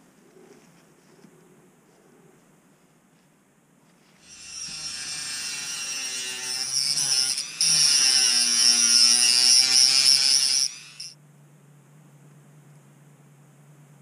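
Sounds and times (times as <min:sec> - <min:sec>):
rotary tool cutting metal: 0:04.2 - 0:11.2.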